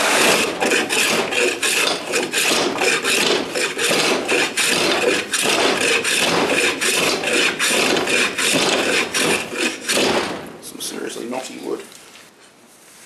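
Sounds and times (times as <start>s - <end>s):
hand plane shaving wood: 0.0s - 10.3s.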